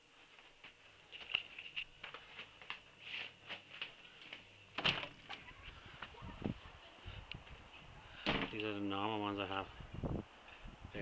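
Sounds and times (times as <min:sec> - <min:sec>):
footsteps: 0:00.2 - 0:06.7.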